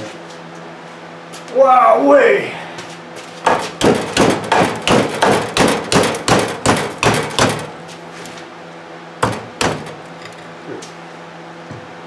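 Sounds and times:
hammer striking metal: 3.5s - 7.8s, 9.2s - 10.3s.

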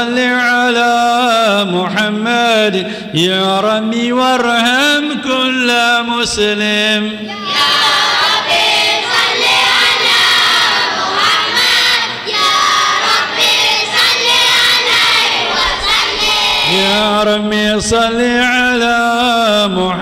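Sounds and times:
leader singing: 0.0s - 20.0s
children singing together: 7.3s - 17.0s.

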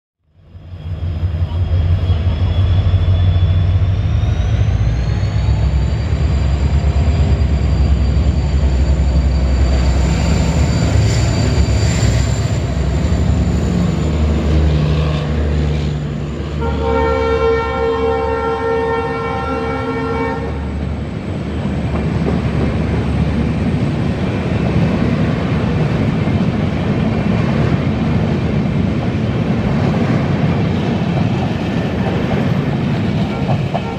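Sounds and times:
diesel locomotive engine drone: 0.2s - 33.9s
locomotive horn blowing: 16.4s - 20.7s.

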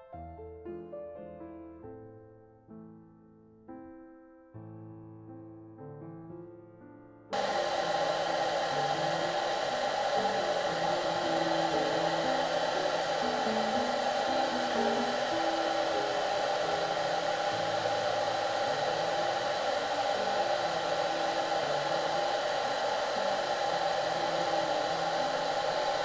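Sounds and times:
hair dryer blowing: 7.4s - 26.0s.

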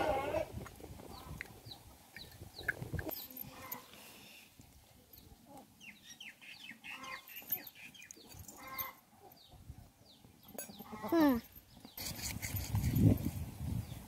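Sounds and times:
chickens clucking and peeping: 1.0s - 3.9s, 5.2s - 12.0s.

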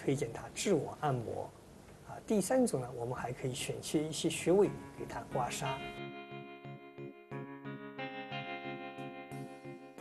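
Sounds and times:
instrumental background music: 4.0s - 10.0s.

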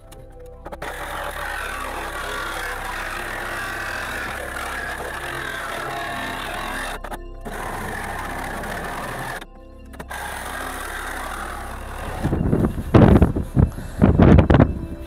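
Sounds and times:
reciprocating saw cutting sheet steel: 0.8s - 9.4s, 10.0s - 12.4s.

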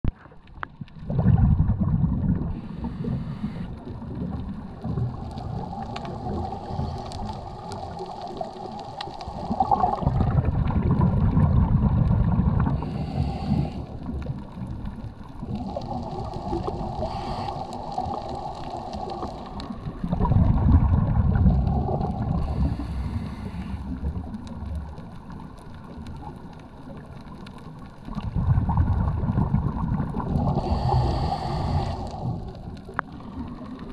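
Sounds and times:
regulator exhale bubbles rumbling: 0.6s - 33.9s
regulator breathing hiss: 2.6s - 3.8s, 12.8s - 14.0s, 16.7s - 19.2s, 22.4s - 23.9s, 30.6s - 32.5s.

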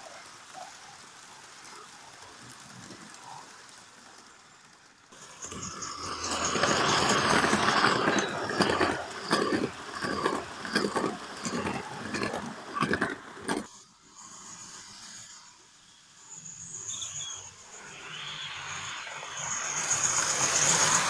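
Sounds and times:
model steam locomotive hissing: 0.0s - 21.0s
coaches clicking over track: 0.1s - 13.7s.

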